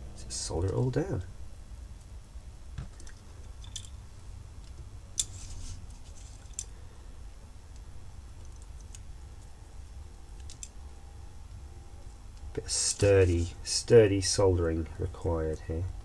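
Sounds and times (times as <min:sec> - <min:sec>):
faint low hum: 0:00.0 - 0:16.0
small tools clicking and tapping: 0:02.9 - 0:04.0.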